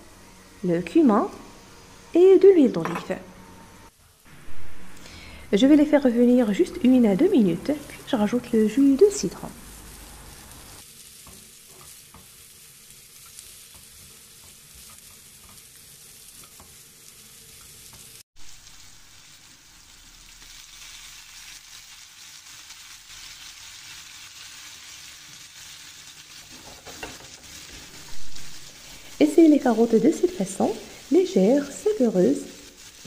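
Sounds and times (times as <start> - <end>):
carrots sizzling in a frying pan: 5.6 - 33.0
spatula stirring in a pan: 10.8 - 18.2.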